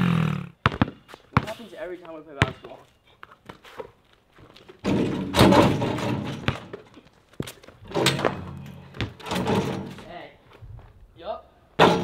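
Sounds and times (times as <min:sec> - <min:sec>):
ball bouncing on concrete: 0:00.6 - 0:03.6, 0:04.6 - 0:10.0
basketball hitting backboard: 0:04.8 - 0:06.8, 0:07.9 - 0:10.0.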